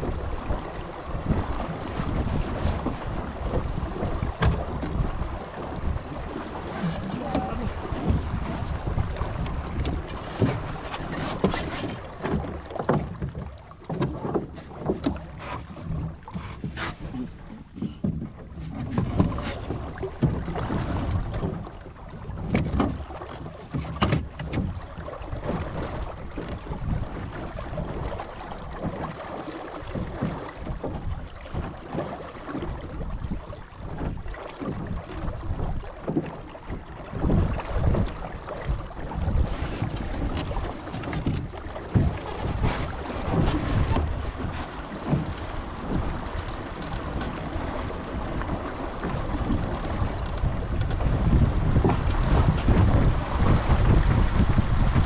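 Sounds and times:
wind buffeting microphone: 0.0s - 13.1s, 32.6s - 55.0s
water rushing along hull: 0.0s - 55.0s.

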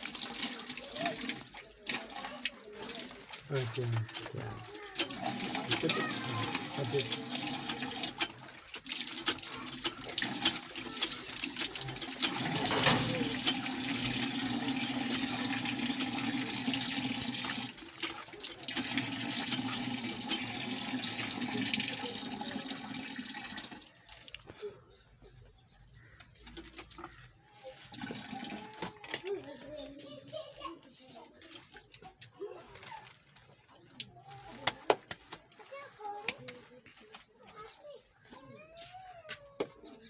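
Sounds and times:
water splashing over hands: 0.0s - 15.4s
water gushing from a hand pump: 0.0s - 24.5s, 26.5s - 29.2s.

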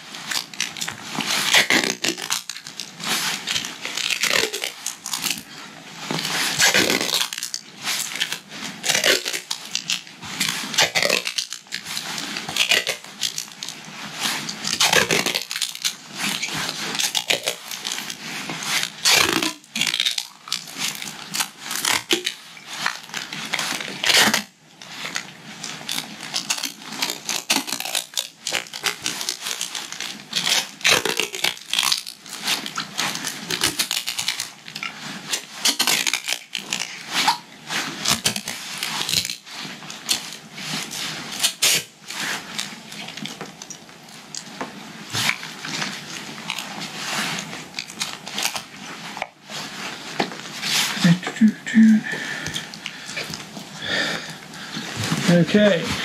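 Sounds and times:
tape ripping off roll: 0.0s - 56.0s
handling rustle: 28.6s - 56.0s.

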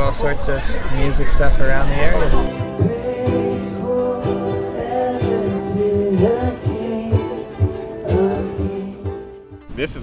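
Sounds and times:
ukuleles strummed: 2.4s - 9.7s
person singing long notes: 2.5s - 9.6s.

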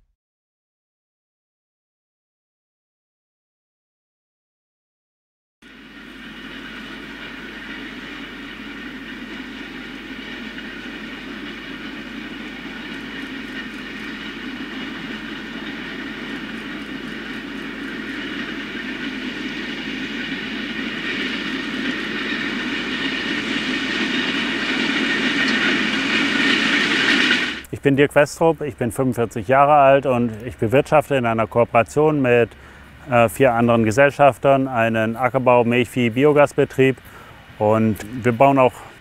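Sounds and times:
high whine: 5.6s - 36.6s
tractor engine droning: 5.6s - 39.0s.

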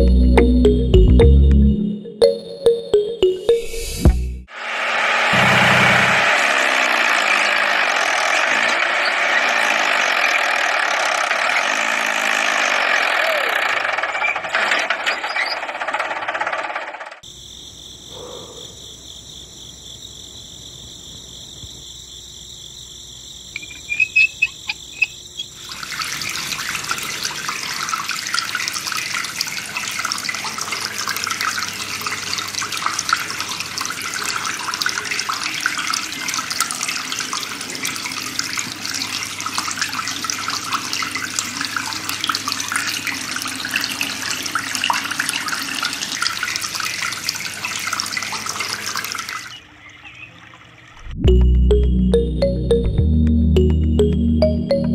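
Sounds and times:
water splashing from hose: 23.6s - 49.6s.

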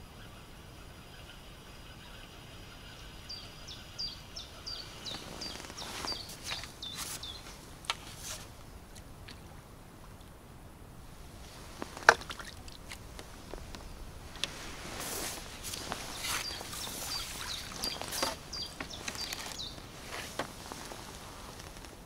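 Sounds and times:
small bird calling: 0.0s - 8.2s, 11.4s - 21.2s
fish splashing and thrashing: 11.5s - 20.6s.

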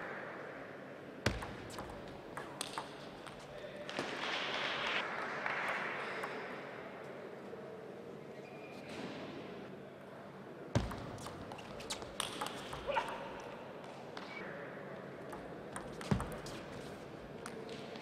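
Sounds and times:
murmur of large hall: 0.0s - 18.0s
table tennis ball clicks: 1.3s - 3.4s.

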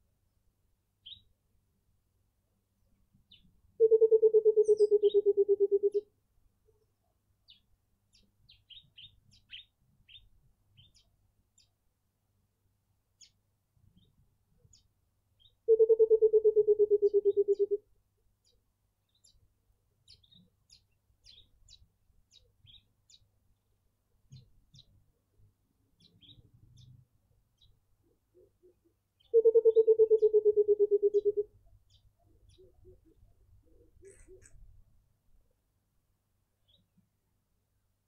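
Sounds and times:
small birds chirping: 1.0s - 1.3s, 3.3s - 6.0s, 6.8s - 11.8s, 13.2s - 16.0s, 18.4s - 34.8s, 36.6s - 37.0s
coucal low hooting call: 3.8s - 6.1s, 15.7s - 17.8s, 28.4s - 31.6s.

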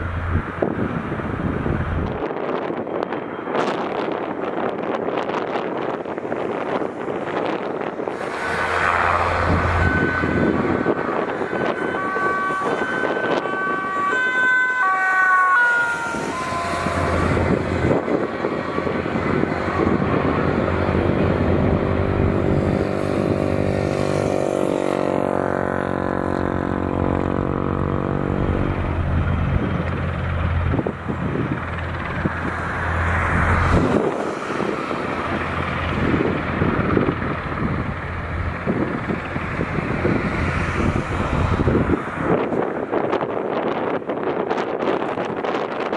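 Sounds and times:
helicopter engine drone and whine: 0.0s - 45.9s
wind on microphone: 0.0s - 45.9s.

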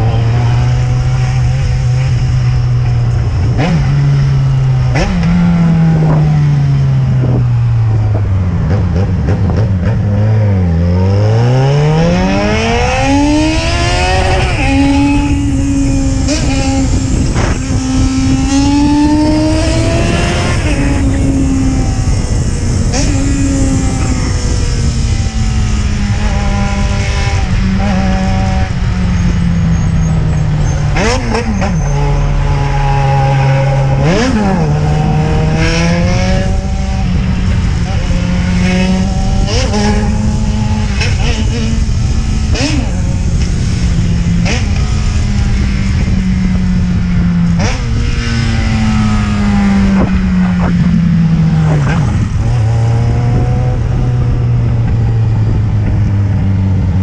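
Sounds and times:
wind rushing over microphone: 0.0s - 57.0s
motorcycle engine running: 12.7s - 57.0s.

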